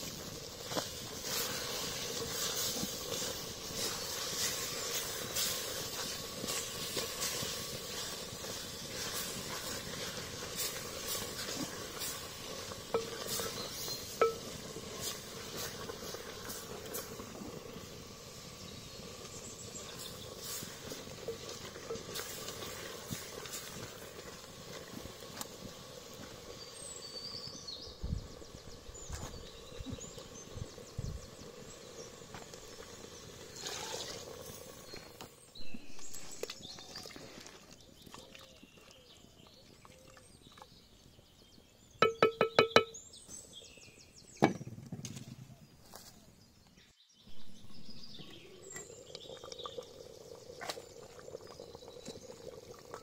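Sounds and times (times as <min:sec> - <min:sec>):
curry bubbling in a pot: 0:00.0 - 0:42.8, 0:47.4 - 0:53.0.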